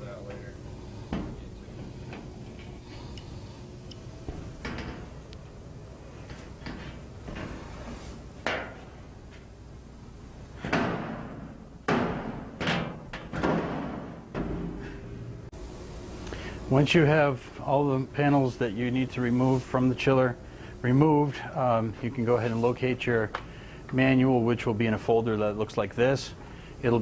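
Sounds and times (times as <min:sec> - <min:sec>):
metal panel knocks and thumps: 0:10.6 - 0:15.0.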